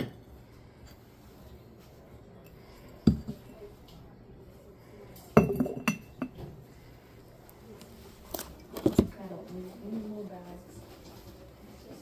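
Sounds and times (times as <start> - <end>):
ceramic jar lid clinking: 5.4 - 6.4.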